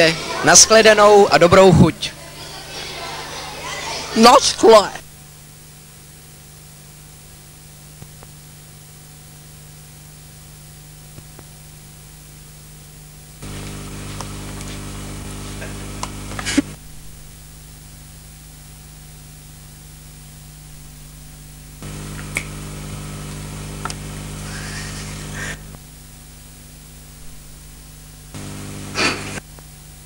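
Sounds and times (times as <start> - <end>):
videotape hiss and hum: 0.0 - 30.0.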